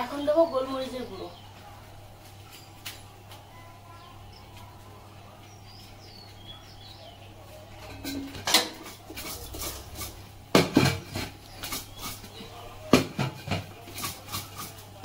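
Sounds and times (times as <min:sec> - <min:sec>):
metal pot and lid clanking: 0:07.8 - 0:12.2, 0:12.9 - 0:14.8.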